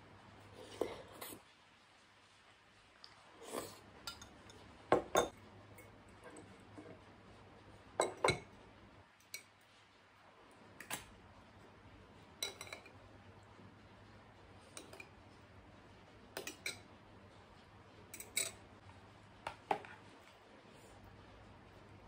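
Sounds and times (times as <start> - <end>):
spoon clinking against bowls: 4.0 - 6.5, 8.0 - 8.5, 12.4 - 13.0, 14.7 - 15.2, 16.3 - 16.9, 18.1 - 18.6.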